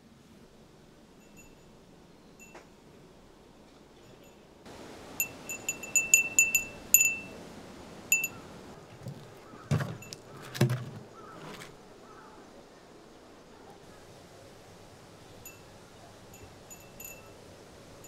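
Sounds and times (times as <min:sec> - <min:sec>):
glass wind chime tinkling: 0:01.2 - 0:01.7, 0:02.4 - 0:02.6, 0:05.2 - 0:07.4, 0:08.1 - 0:08.4, 0:15.5 - 0:15.7, 0:16.3 - 0:17.4
footsteps on wooden decking: 0:08.9 - 0:11.8.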